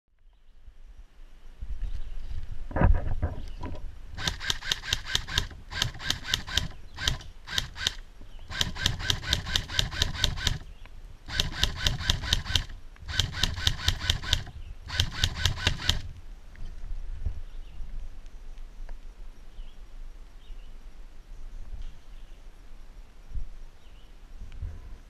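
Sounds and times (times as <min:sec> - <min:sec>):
airsoft guns firing bursts: 0:04.2 - 0:16.1.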